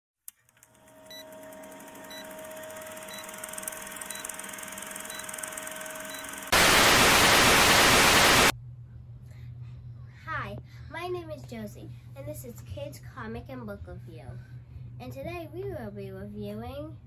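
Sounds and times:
loud tv static hiss: 6.5s - 8.5s.

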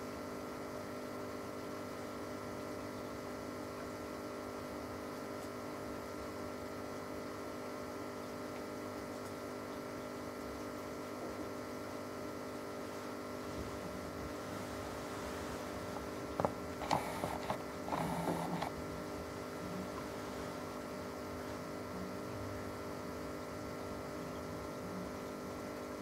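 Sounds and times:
aquarium equipment humming: 0.0s - 26.0s.

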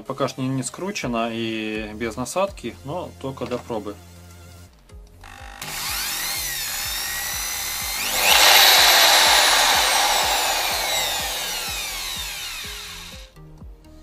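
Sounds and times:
electric drill motor spinning: 5.3s - 13.3s.

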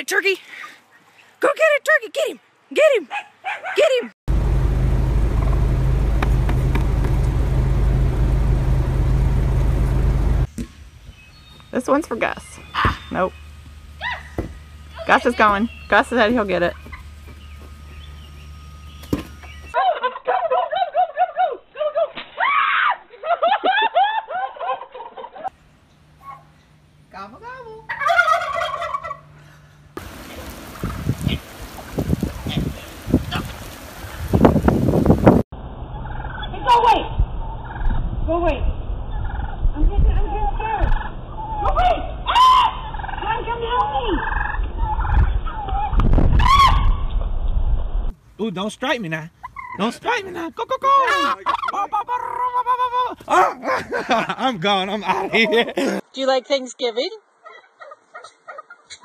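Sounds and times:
turkey calling: 12.5s - 21.5s, 27.8s - 29.4s, 36.0s - 38.0s, 39.1s - 39.6s, 40.9s - 47.1s, 49.4s - 50.0s, 50.8s - 53.5s, 57.3s - 59.0s.

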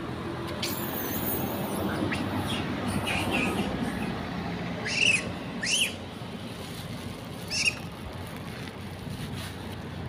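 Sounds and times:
macaques squealing: 0.6s - 4.2s, 4.8s - 6.0s, 7.5s - 7.9s.

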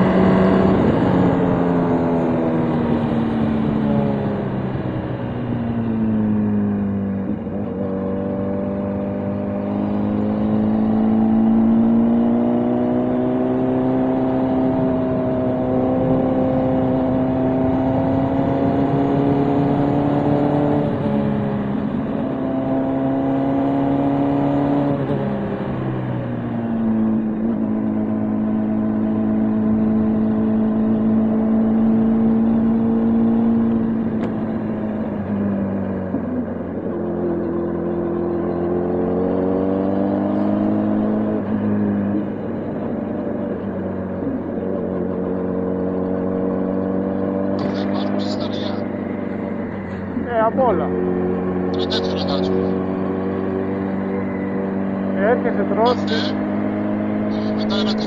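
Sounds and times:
motorcycle engine running: 47.6s - 58.0s.

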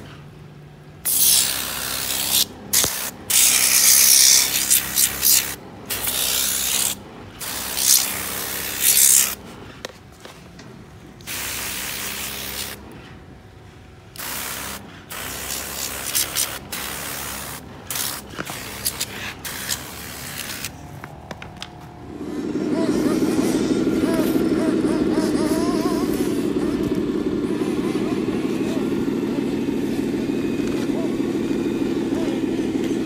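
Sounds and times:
pressure washer spraying water: 1.0s - 9.4s, 11.2s - 12.8s, 14.2s - 20.9s.

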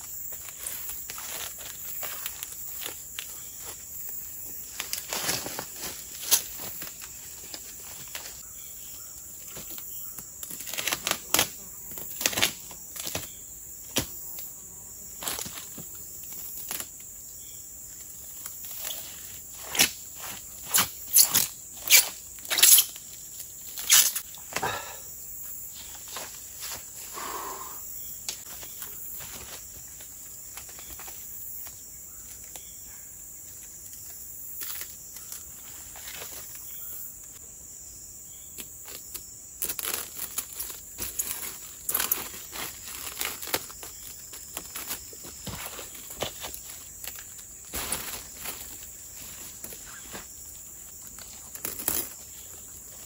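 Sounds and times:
rustles: 0.0s - 14.4s, 38.5s - 53.0s
insects chirring: 0.0s - 53.0s.

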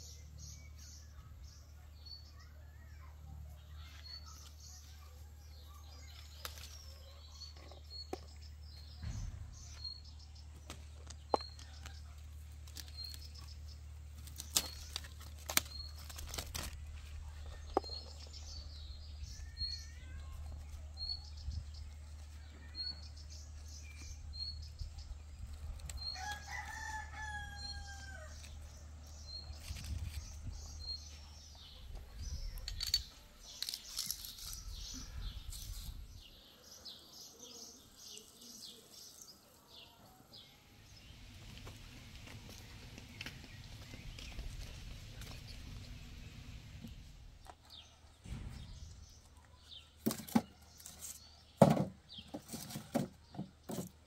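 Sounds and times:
rooster crowing: 26.2s - 28.4s.

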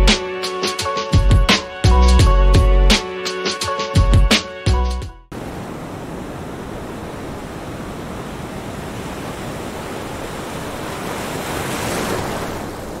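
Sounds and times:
ocean waves washing: 5.3s - 13.0s.

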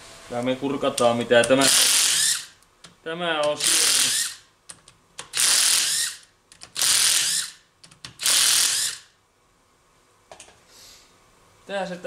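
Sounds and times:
ratchet wrench clicking: 1.5s - 2.5s, 3.5s - 4.4s, 5.2s - 9.1s.

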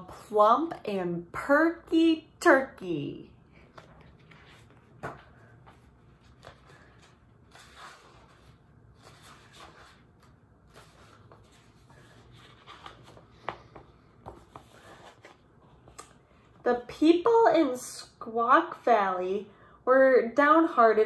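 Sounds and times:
book pages rustling: 3.6s - 16.6s.

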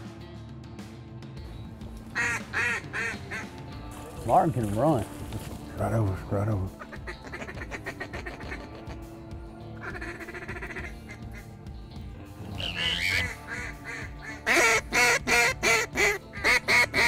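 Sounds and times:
duck quacking: 2.1s - 3.6s, 6.7s - 9.0s, 9.8s - 11.5s, 12.4s - 17.0s.

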